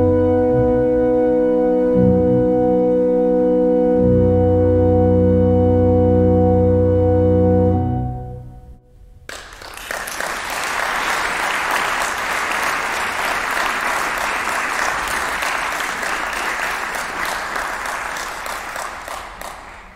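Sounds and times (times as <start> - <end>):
audience applauding: 9.3 - 19.9.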